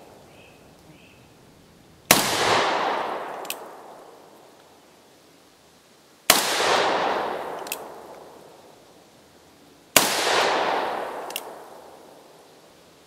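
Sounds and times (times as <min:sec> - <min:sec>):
revolver gunshots echoing: 0:02.1 - 0:04.0, 0:06.3 - 0:08.1, 0:10.0 - 0:12.0
light click: 0:11.2 - 0:11.5.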